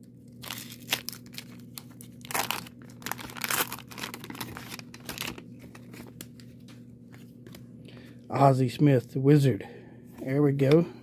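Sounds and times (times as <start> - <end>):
wax paper wrapper tearing and crinkling: 0.3 - 6.7.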